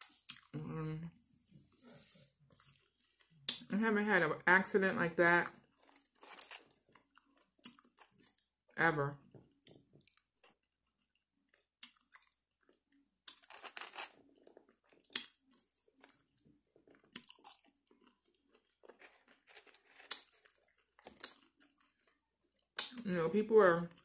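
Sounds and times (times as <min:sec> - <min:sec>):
person chewing crunchy fries: 0:05.6 - 0:08.5, 0:09.5 - 0:23.0.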